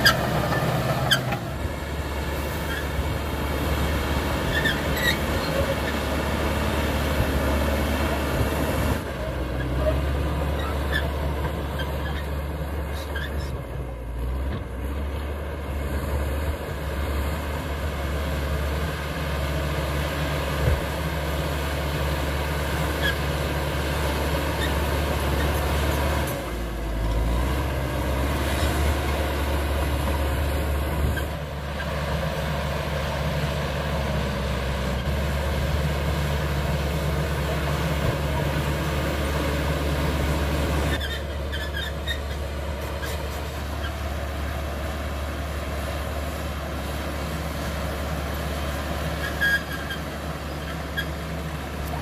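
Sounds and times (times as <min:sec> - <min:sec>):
bulldozer diesel engine: 0:00.0 - 0:52.0.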